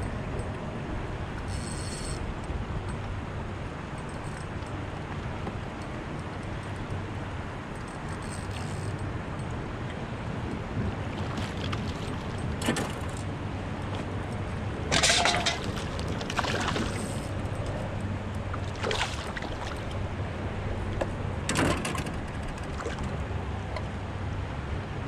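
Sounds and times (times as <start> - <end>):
fish splashing at water surface: 14.9 - 17.4, 18.6 - 20.0.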